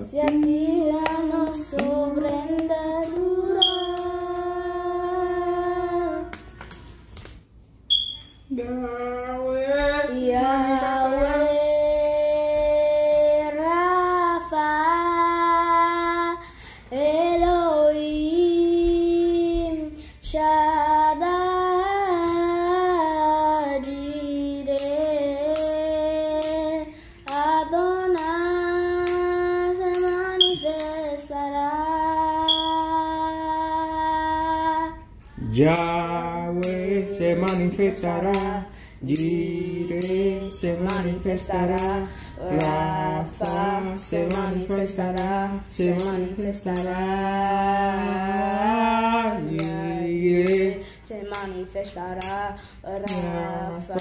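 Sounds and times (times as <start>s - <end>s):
girl singing unaccompanied: 0.0s - 6.5s, 8.5s - 54.0s
girl breathing between phrases: 38.7s - 39.0s, 42.0s - 42.4s.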